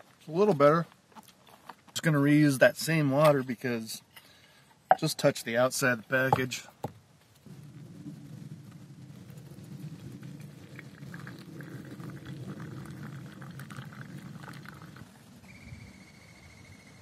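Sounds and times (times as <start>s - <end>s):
camp stove low rumble: 7.4s - 15.3s
water bubbling at the boil: 9.6s - 15.2s.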